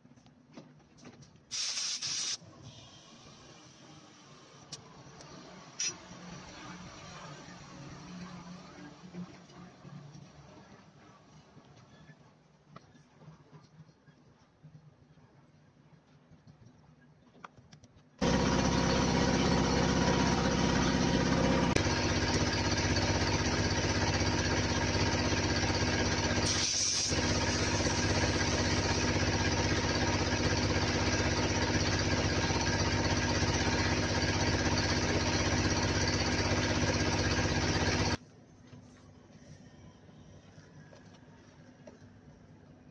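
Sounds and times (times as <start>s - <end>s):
air compressor running: 1.5s - 2.4s, 18.2s - 38.2s
short air hiss: 1.5s - 2.4s, 26.4s - 27.9s.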